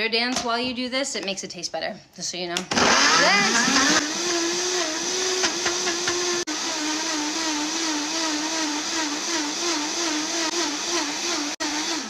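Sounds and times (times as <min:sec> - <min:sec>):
blender motor running: 0:02.7 - 0:12.0.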